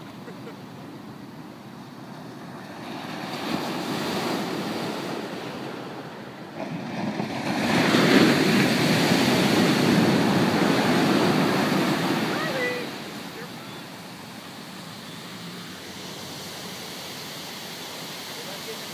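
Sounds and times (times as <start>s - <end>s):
ocean waves breaking on beach: 0.0s - 18.9s.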